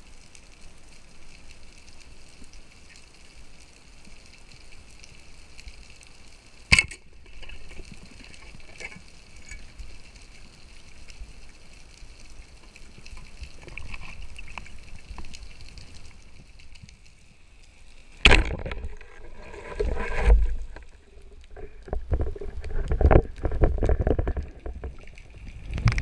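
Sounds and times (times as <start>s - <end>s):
speargun firing underwater: 18.2s - 19.0s
small clicks and knocks: 19.8s - 26.0s.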